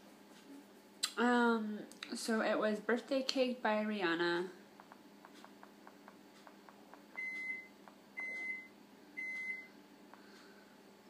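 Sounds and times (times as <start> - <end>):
microwave oven beeping: 6.4 - 10.6.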